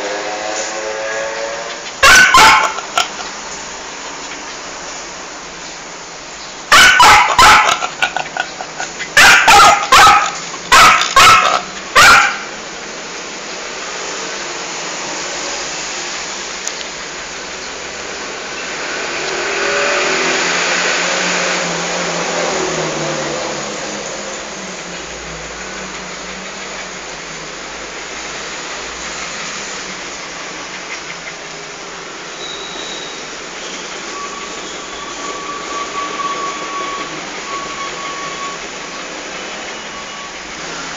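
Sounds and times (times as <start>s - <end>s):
small dog barking: 2.0s - 3.2s, 6.7s - 8.5s, 9.2s - 12.6s.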